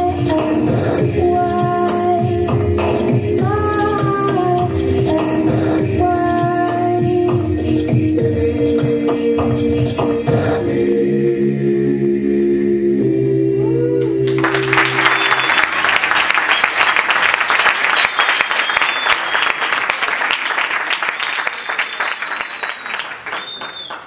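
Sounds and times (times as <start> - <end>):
choir singing: 0.2 - 15.8
audience applause: 14.3 - 24.0.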